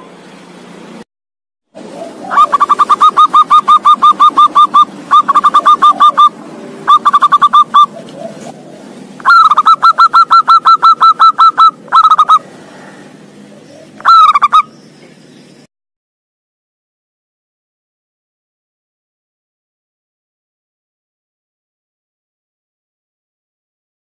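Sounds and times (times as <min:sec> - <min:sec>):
dove cooing: 0:01.8 - 0:14.7.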